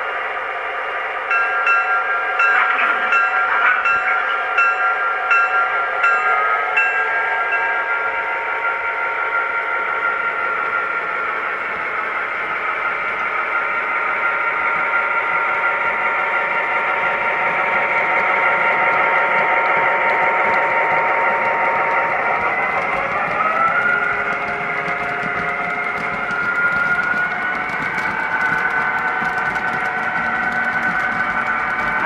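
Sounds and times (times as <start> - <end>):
model train wheel and motor noise: 7.5 - 32.0
diesel engine sound from small speaker: 30.5 - 32.0.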